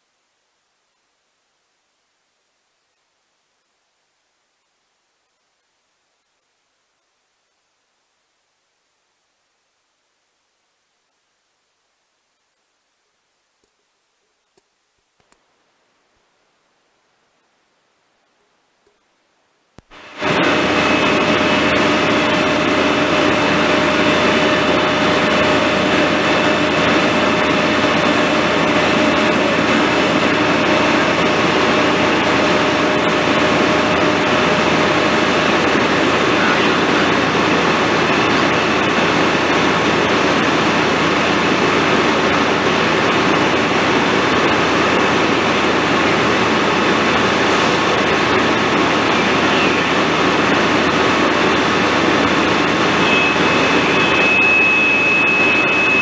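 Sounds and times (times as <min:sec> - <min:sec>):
fire engine engine droning: 0:19.9 - 0:56.0.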